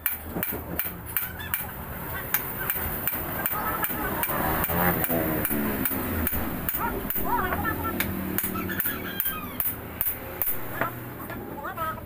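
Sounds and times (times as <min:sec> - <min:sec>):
wavering pitched call: 0:04.3 - 0:09.9.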